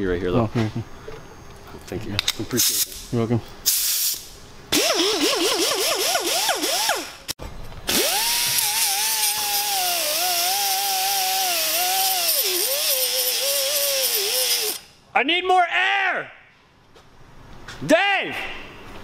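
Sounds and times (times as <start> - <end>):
air hiss: 3.6 - 4.3
pneumatic die grinder whining: 4.7 - 7.3, 7.9 - 14.9.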